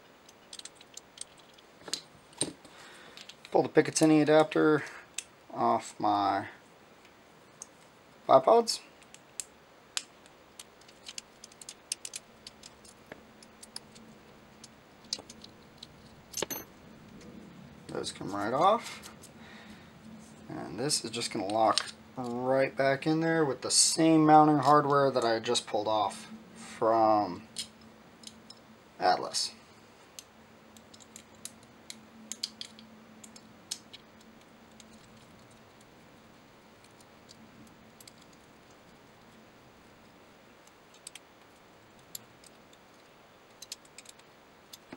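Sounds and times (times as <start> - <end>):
faint small clicks and ticks: 0.2 - 5.4, 8.9 - 16.2, 30.0 - 36.1, 36.7 - 44.9.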